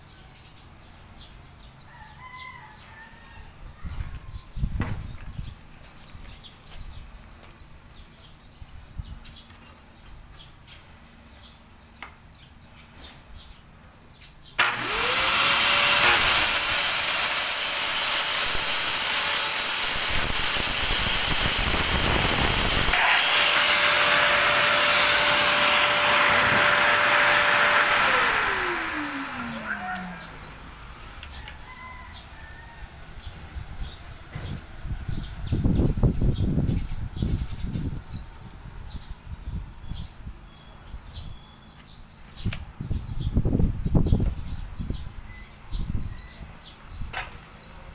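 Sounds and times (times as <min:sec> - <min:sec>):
dust extractor running: 0:14.6 - 0:31.2
circular saw cutting plywood: 0:14.6 - 0:31.3.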